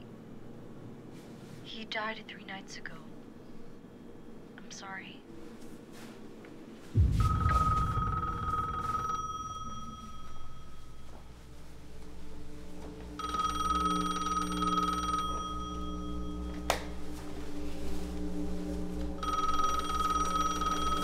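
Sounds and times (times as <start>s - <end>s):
low steady drone: 7.0s - 21.0s
electronic phone ring tone: 7.2s - 11.3s, 13.1s - 16.7s, 19.2s - 21.0s.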